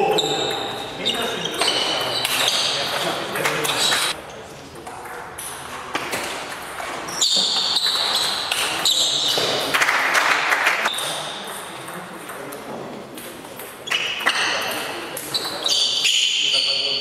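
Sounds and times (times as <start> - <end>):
shoes squeaking on floor: 0.0 - 4.2, 6.1 - 9.7, 13.8 - 17.0.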